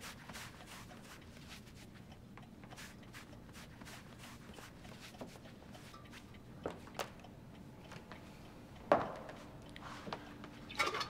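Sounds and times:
soft taps and rustles: 0.0s - 7.2s.

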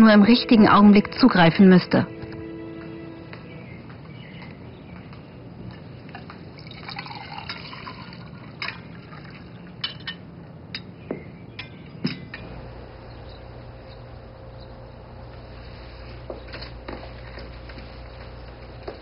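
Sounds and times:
steady low hum: 0.0s - 19.0s
drink pouring into glasses: 6.5s - 10.2s
glass and china clinking: 6.6s - 8.8s, 9.8s - 11.0s, 11.6s - 12.5s.

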